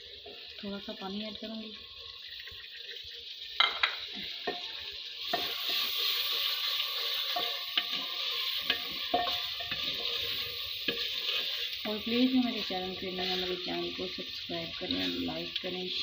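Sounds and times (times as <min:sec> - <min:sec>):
masala sizzling in a pot: 0:00.0 - 0:16.0
spoon knocking against a pot: 0:03.6 - 0:04.7, 0:08.6 - 0:10.0.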